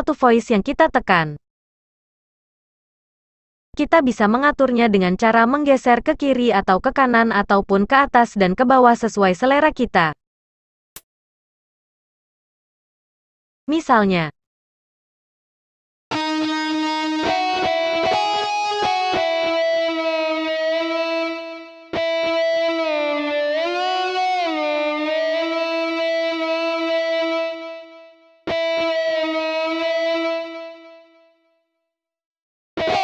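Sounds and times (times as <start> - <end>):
distorted electric guitar keyboard notes: 16.1 - 31.3, 32.8 - 33.0.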